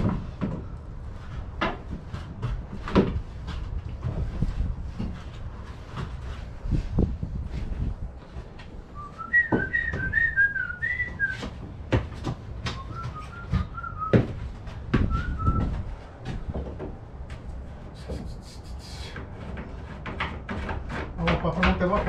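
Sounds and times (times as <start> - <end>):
person whistling a tune: 9.0 - 11.4, 12.7 - 14.2, 15.1 - 15.8.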